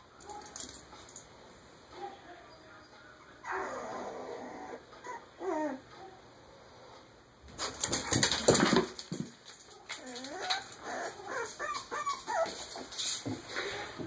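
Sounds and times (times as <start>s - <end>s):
puppies whimpering: 3.2s - 5.9s, 10.0s - 13.0s.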